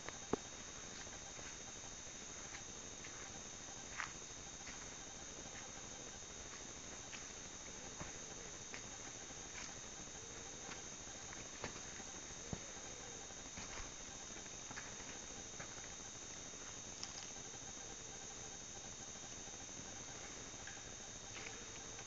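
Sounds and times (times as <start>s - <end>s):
crickets chirping: 0.0s - 22.0s
footsteps on rocky trail: 0.2s - 1.7s, 2.4s - 5.8s, 6.4s - 12.8s, 13.4s - 16.0s, 21.3s - 22.0s.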